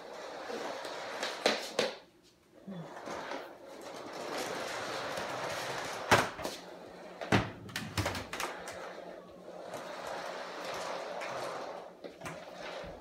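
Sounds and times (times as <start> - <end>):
vacuum cleaner knocking and rattling: 3.8 - 6.6, 7.2 - 8.9.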